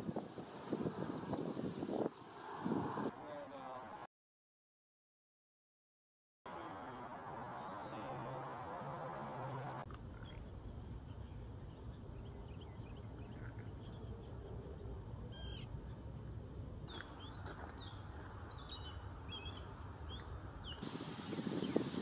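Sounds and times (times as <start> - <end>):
faint bird chirps: 6.6 - 16.0
insects shrilling: 9.9 - 16.9.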